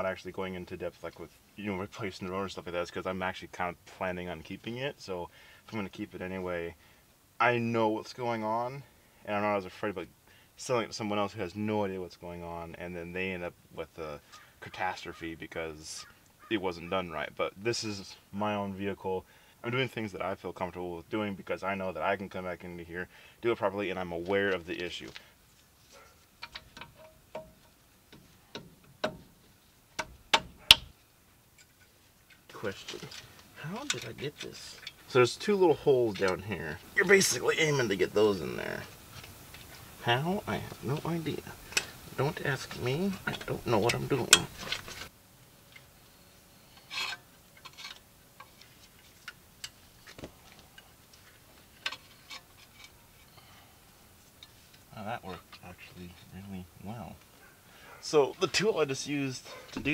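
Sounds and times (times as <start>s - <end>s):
metal parts clicking and clinking: 26.4s - 27.7s.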